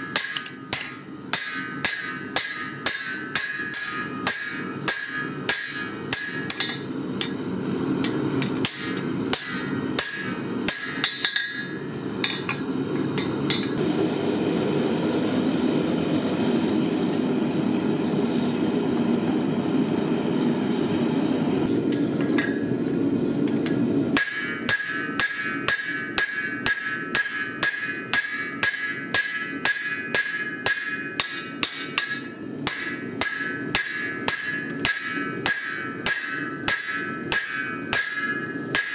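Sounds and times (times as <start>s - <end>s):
hammer ringing on anvil: 0.0s - 7.4s, 8.0s - 13.8s, 22.4s - 22.8s, 24.2s - 38.9s
forge roaring: 11.6s - 24.1s.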